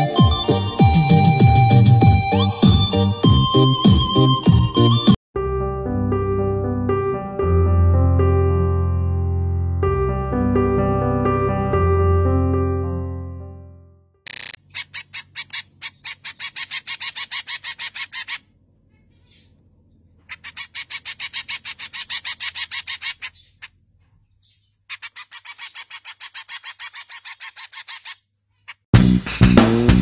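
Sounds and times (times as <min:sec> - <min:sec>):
young bird begging chirps: 0:14.7 - 0:19.6, 0:20.2 - 0:23.8, 0:24.4 - 0:28.8.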